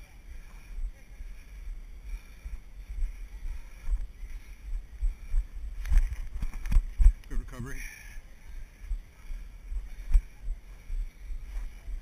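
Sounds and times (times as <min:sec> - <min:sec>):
wind rumble: 0:00.0 - 0:12.0
camera handling noise: 0:05.8 - 0:07.0.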